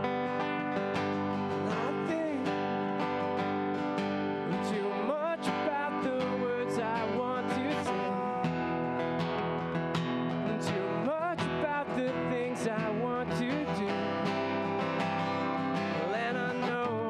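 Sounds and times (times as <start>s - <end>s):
acoustic guitar strumming: 0.0s - 17.0s
man singing into a microphone: 1.6s - 2.8s, 4.4s - 8.8s, 10.4s - 14.9s, 15.9s - 17.0s.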